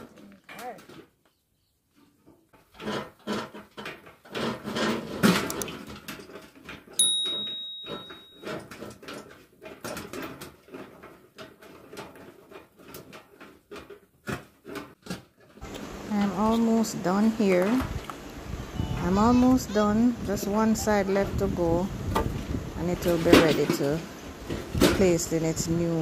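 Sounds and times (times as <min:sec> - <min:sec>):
sharp metallic ring: 0:07.0 - 0:08.6.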